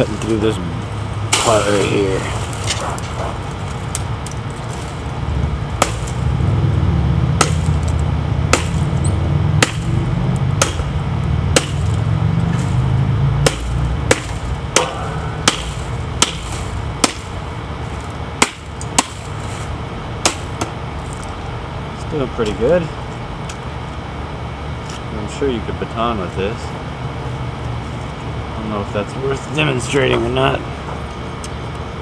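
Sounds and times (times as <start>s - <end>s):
low rumble: 0.8s - 21.9s
knife chopping palm stalk: 5.8s - 6.3s, 7.4s - 9.0s, 9.6s - 10.9s, 11.5s - 17.4s, 18.4s - 19.4s, 20.2s - 20.8s.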